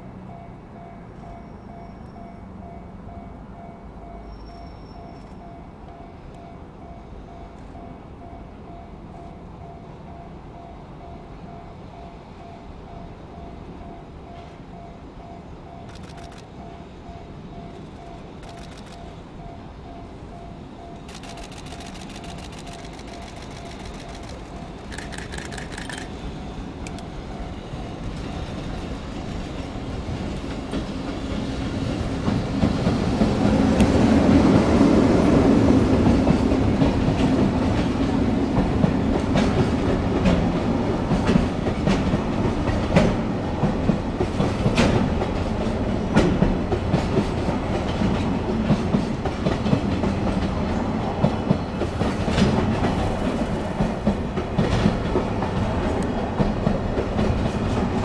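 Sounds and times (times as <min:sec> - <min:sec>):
freight train rumble: 0:00.0 - 0:58.0
wheels clacking over rail joints: 0:21.1 - 0:34.7, 0:35.9 - 0:58.0.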